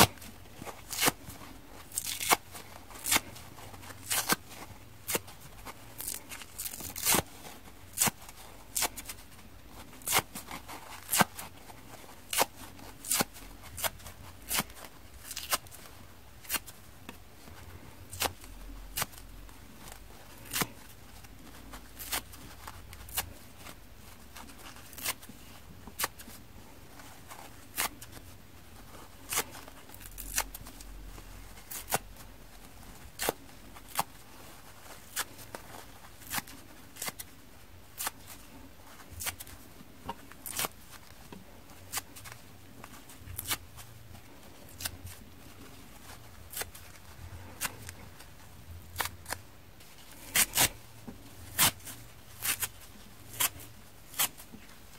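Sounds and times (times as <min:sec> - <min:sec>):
sponge tearing: 0:00.0 - 0:09.2, 0:12.3 - 0:15.8, 0:21.9 - 0:23.8, 0:27.4 - 0:28.2, 0:29.1 - 0:32.3, 0:40.4 - 0:41.0, 0:44.6 - 0:48.0, 0:48.8 - 0:49.5, 0:50.1 - 0:50.8, 0:51.4 - 0:54.5.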